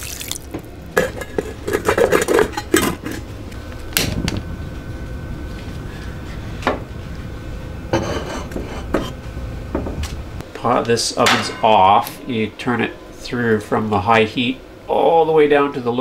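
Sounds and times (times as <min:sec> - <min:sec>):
metal pot clattering on stove: 0:11.2 - 0:12.1.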